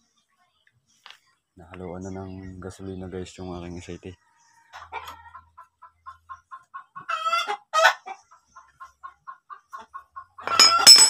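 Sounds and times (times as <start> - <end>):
hen clucking: 4.0 - 10.8
loud chicken calls: 6.9 - 8.2.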